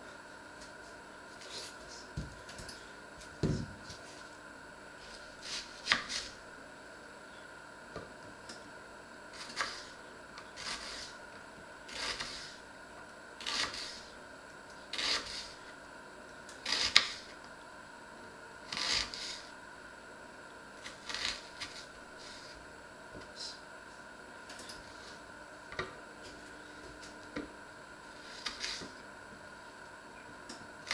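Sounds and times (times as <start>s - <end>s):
knife slicing onion on wooden board: 5.4s - 6.3s, 9.4s - 10.0s, 10.6s - 11.2s, 11.9s - 12.6s, 13.4s - 14.1s, 15.0s - 15.6s, 16.6s - 17.3s, 18.7s - 19.5s, 20.8s - 22.6s, 28.2s - 29.0s.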